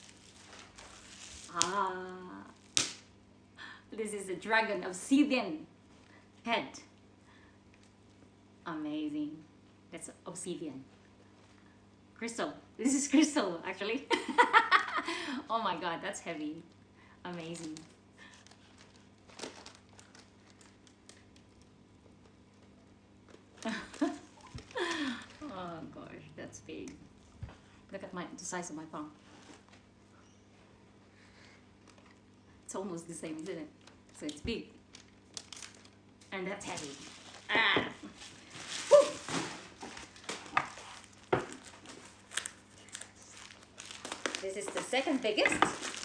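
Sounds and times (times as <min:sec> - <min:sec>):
bubble wrap crinkling: 0:00.0 - 0:03.2, 0:16.5 - 0:25.9, 0:33.3 - 0:46.0
woman exclaiming: 0:38.9 - 0:39.3.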